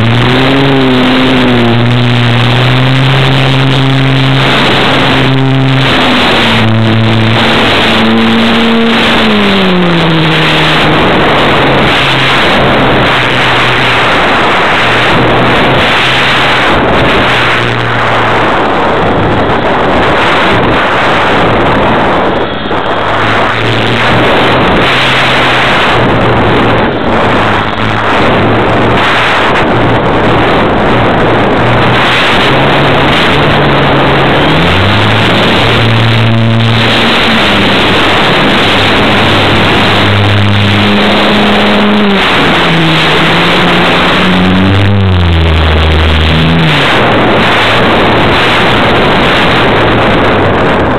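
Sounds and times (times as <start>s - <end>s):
model plane motor drone: 0.0s - 19.2s, 32.5s - 48.0s
wind rush over microphone: 0.0s - 50.9s.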